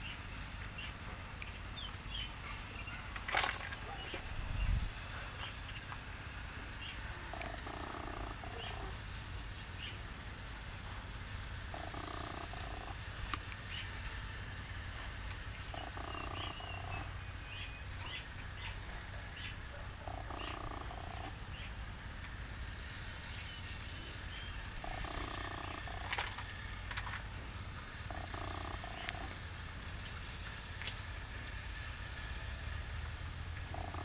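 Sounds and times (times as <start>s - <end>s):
small birds chirping: 0.0s - 6.0s, 6.7s - 10.1s, 11.7s - 14.1s, 15.4s - 21.8s, 23.2s - 26.1s, 28.1s - 29.4s, 33.6s - 34.0s.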